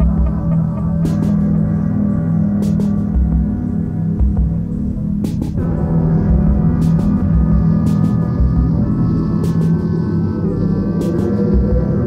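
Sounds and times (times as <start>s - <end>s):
ambient music with low drone: 0.0s - 12.0s.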